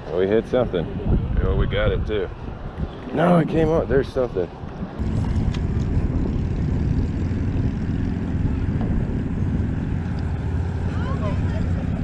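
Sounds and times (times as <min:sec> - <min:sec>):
low engine drone: 0:04.8 - 0:12.0.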